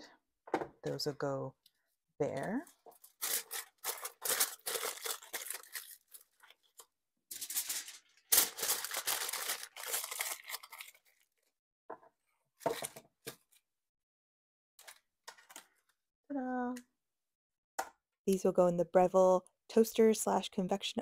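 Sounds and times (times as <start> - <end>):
aluminium foil crinkling: 2.4 - 11.5.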